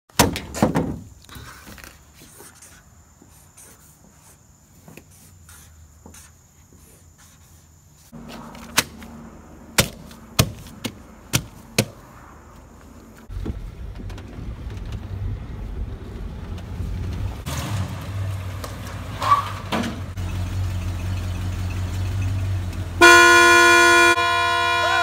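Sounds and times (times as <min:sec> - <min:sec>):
faint marker strokes: 0:02.1 - 0:08.2.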